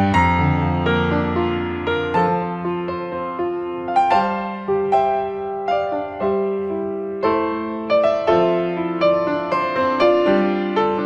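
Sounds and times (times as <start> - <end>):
gentle piano-like keyboard melody: 0.0 - 11.0.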